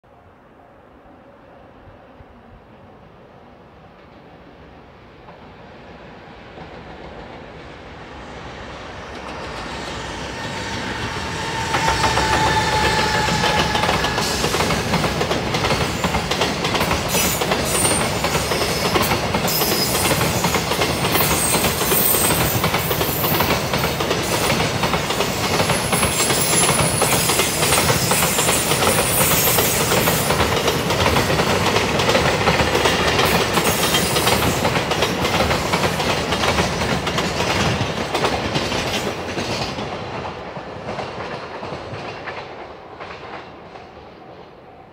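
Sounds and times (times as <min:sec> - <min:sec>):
freight train passing: 0:00.0 - 0:44.9
high wheel squeals: 0:09.9 - 0:14.7.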